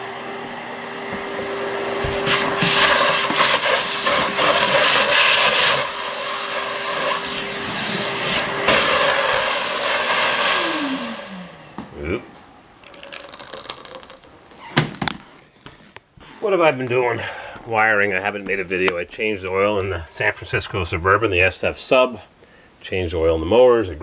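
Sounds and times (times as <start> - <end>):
vacuum motor spinning down: 0.0 - 11.6
vacuum cleaner running: 0.0 - 11.9.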